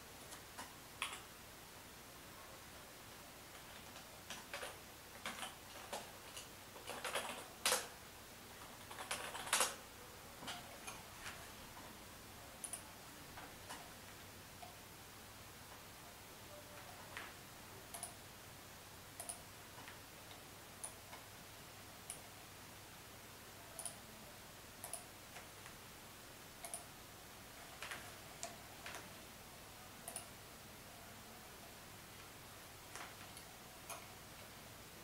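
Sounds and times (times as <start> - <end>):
faint steady hiss: 0.0 - 35.0
computer mouse clicking: 0.2 - 1.3, 3.6 - 7.9, 8.6 - 9.8, 12.6 - 12.9, 17.9 - 18.2, 19.2 - 20.0, 23.8 - 24.0, 24.8 - 25.8, 26.6 - 26.9, 30.0 - 30.3.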